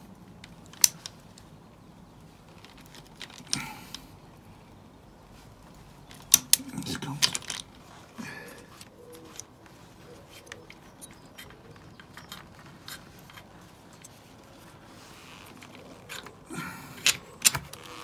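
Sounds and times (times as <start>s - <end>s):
metallic clicks and scrapes of bolt: 0.7s - 1.2s, 6.0s - 7.7s, 10.3s - 14.3s.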